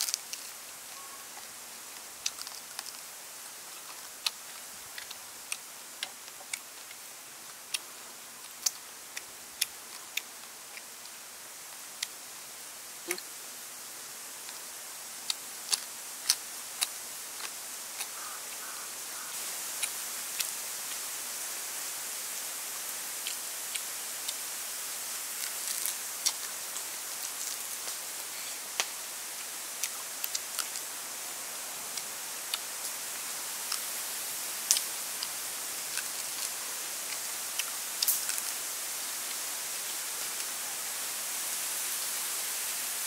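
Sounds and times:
steady high hiss: 0.0 - 43.0
crispy fried food snapping: 2.2 - 3.1, 8.5 - 8.8, 37.6 - 38.5.

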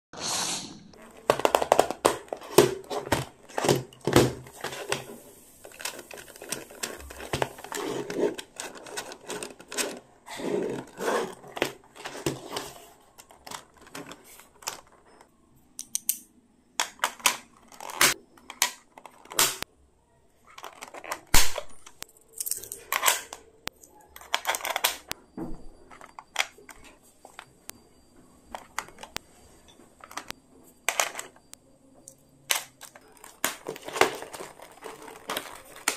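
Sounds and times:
stationery clicking on plastic case: 1.2 - 5.1, 5.7 - 15.1, 32.5 - 35.9.

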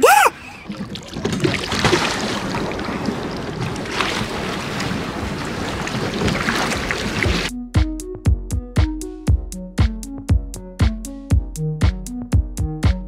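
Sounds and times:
water churning and splashing: 0.0 - 7.5.

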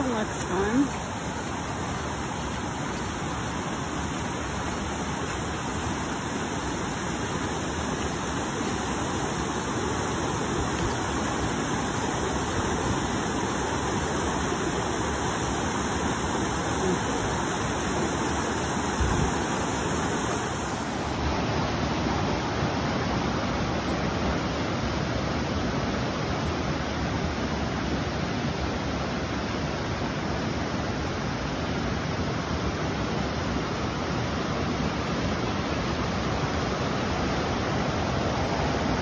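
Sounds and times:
river rushing over rocks: 0.0 - 39.0.

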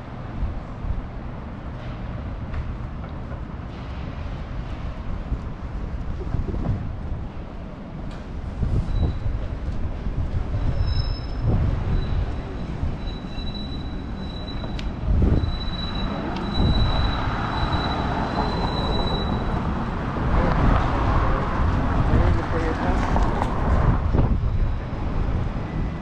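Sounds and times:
street traffic rumble: 0.0 - 26.0
streetcar wheels squealing: 8.6 - 9.8, 10.4 - 20.6.

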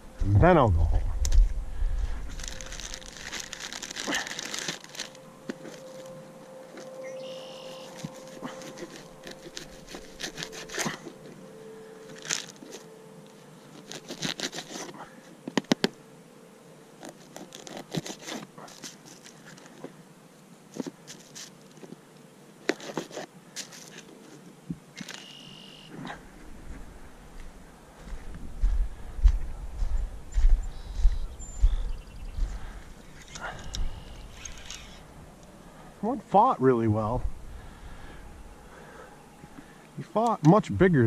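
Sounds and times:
plastic zip bag rustling: 2.0 - 6.2, 7.7 - 11.3, 12.1 - 12.9, 13.7 - 15.0, 17.0 - 19.7.

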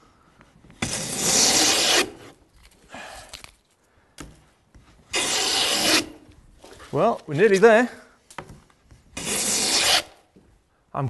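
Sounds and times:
hand plane cutting wood: 0.8 - 2.4, 5.1 - 6.2, 9.2 - 10.2.

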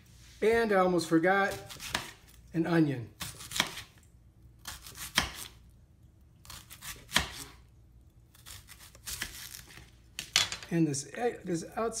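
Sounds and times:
knife slicing onion: 1.4 - 2.4, 3.0 - 4.0, 4.6 - 5.6, 6.4 - 7.6, 8.3 - 9.9.

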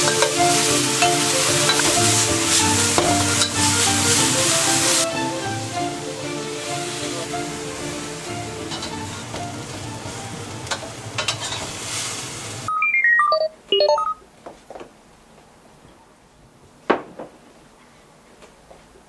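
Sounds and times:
vegetables sizzling in a wok: 0.0 - 12.7
bright chime notes: 12.7 - 14.2.

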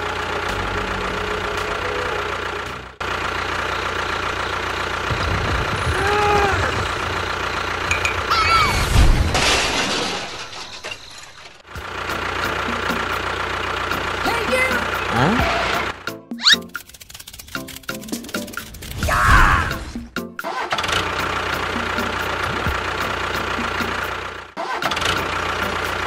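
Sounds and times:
tractor engine running: 0.0 - 9.3, 11.4 - 26.0
loud crash: 8.6 - 11.6.

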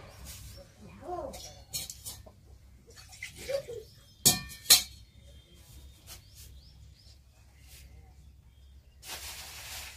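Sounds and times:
sharp metallic knocks: 4.2 - 5.0.

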